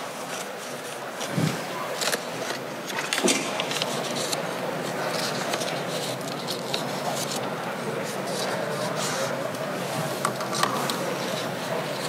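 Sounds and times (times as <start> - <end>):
background murmur: 0.0 - 12.0
paper rustling: 0.0 - 12.0.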